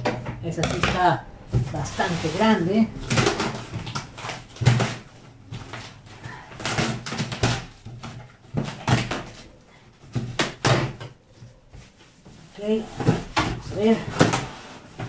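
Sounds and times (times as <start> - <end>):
cardboard rustling: 1.4 - 15.0
cardboard knocks and scrapes: 11.8 - 15.0.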